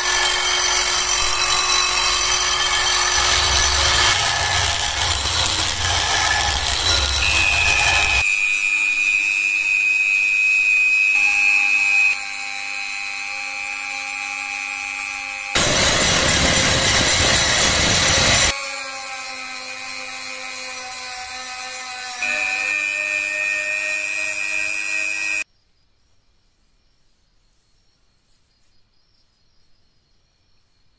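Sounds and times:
abrasive wheel grinding steel: 0:00.0 - 0:08.4, 0:15.4 - 0:18.6.

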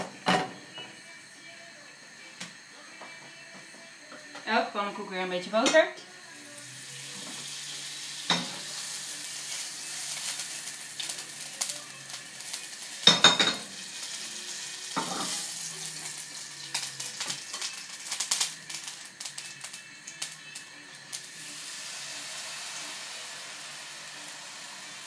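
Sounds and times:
butter sizzling in frying pan: 0:06.1 - 0:25.0
pan and utensil clattering: 0:14.9 - 0:15.5.

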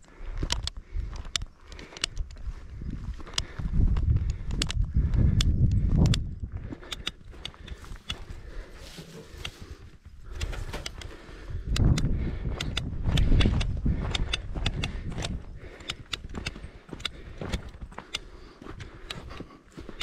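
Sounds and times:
footsteps on dirt trail: 0:00.0 - 0:20.0
low rumble on microphone: 0:02.3 - 0:06.7.

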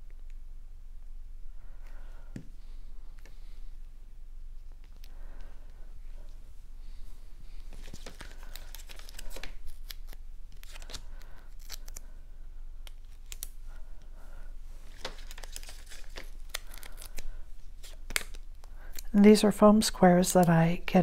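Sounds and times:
paper crinkling and rustling: 0:07.6 - 0:12.1, 0:14.8 - 0:19.1.

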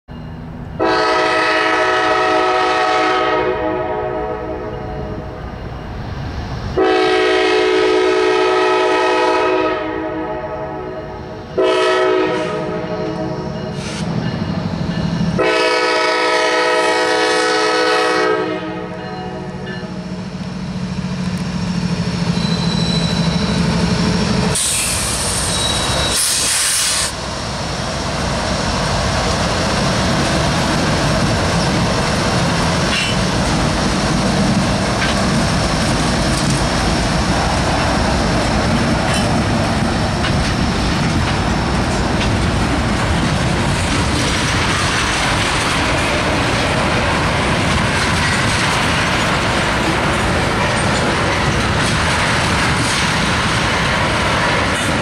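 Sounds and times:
locomotive horn blasts: 0:00.8 - 0:05.3, 0:06.8 - 0:13.4, 0:15.3 - 0:19.7
diesel engines rumbling: 0:18.7 - 0:55.0
high hiss: 0:24.4 - 0:27.3.

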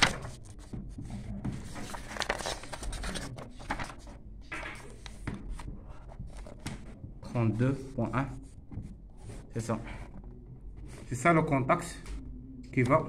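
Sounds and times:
paper pages rustling: 0:00.0 - 0:04.2, 0:04.8 - 0:07.0.

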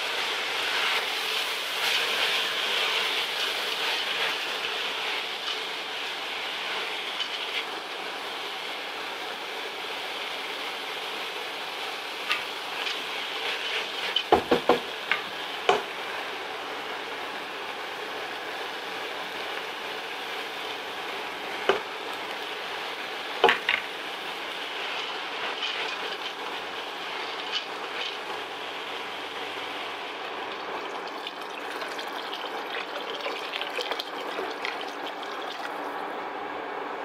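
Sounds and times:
vegetables sizzling in a pot: 0:00.0 - 0:36.2.

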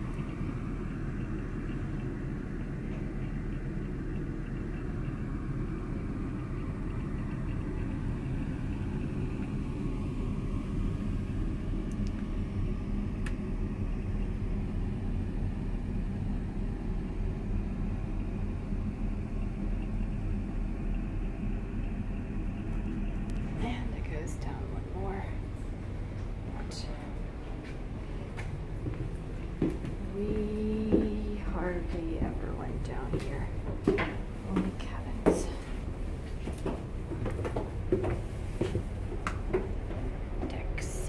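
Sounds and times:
ship engines rumbling: 0:13.8 - 0:41.0.

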